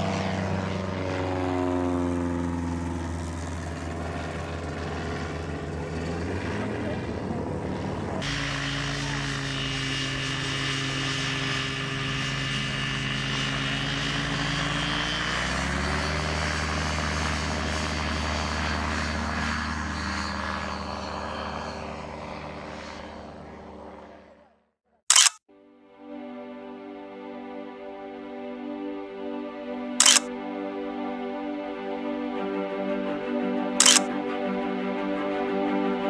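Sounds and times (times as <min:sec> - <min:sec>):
propeller engine running: 0:00.0 - 0:24.5, 0:25.1 - 0:25.4, 0:28.0 - 0:36.0
sharp click: 0:25.1 - 0:25.4, 0:30.0 - 0:30.3, 0:33.8 - 0:34.1.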